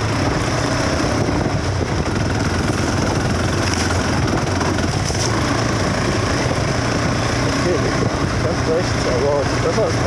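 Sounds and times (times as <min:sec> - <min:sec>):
wind noise: 0:00.0 - 0:09.3
motorcycle engine running: 0:00.0 - 0:10.0.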